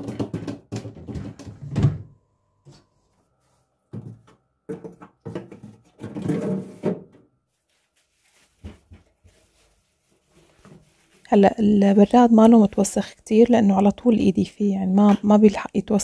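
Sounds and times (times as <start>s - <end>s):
refrigerator drawers sliding and knocking: 4.8s - 7.2s.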